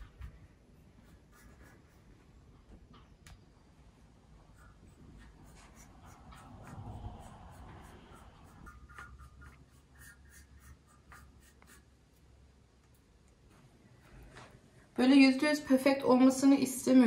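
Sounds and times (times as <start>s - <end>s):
paintbrush scratchy strokes: 0.8s - 2.5s, 4.4s - 14.3s.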